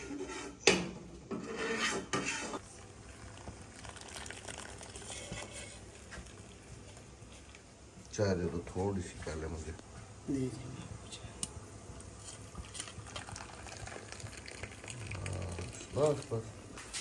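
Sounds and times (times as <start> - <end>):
tea pouring through strainer: 2.6 - 7.6, 12.2 - 17.0.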